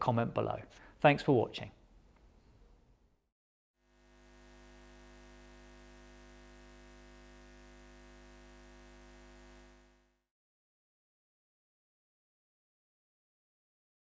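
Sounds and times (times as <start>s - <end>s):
synthesizer pad drone: 3.9s - 10.1s.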